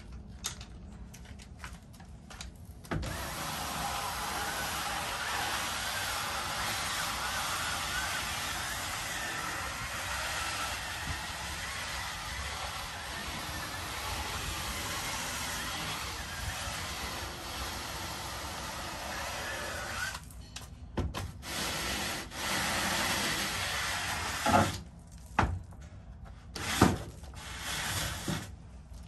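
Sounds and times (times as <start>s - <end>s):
drill-powered scrub brush whirring: 3.0s - 20.2s, 21.4s - 24.8s.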